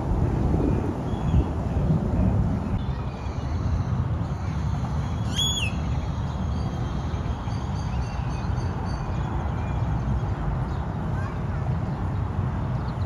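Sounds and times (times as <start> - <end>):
steady low rumble: 0.0 - 5.1
high bird call: 5.1 - 5.8.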